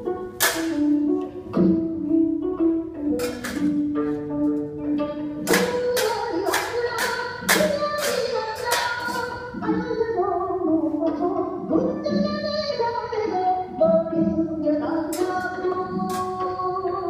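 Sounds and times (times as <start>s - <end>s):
recorded music with singing: 5.0s - 17.0s.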